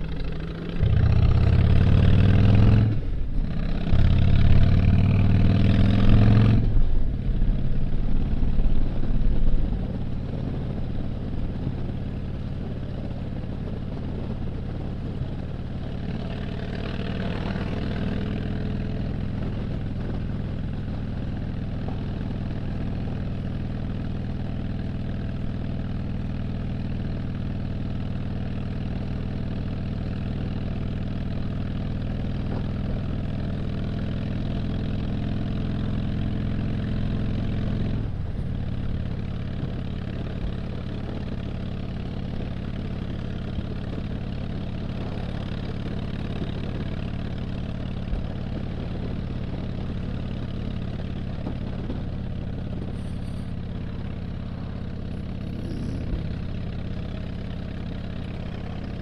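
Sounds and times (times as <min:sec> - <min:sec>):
motorcycle engine running: 0:00.0 - 0:59.0
wind rush on microphone: 0:06.6 - 0:16.1, 0:43.7 - 0:50.4, 0:51.0 - 0:56.5.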